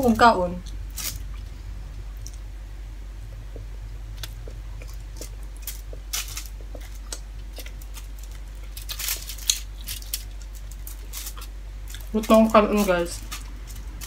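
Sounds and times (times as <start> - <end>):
steady low hum: 0.0 - 14.0
crackling of aluminium foil: 0.9 - 1.2, 5.2 - 14.0
chewing and mouth sounds: 3.5 - 12.4.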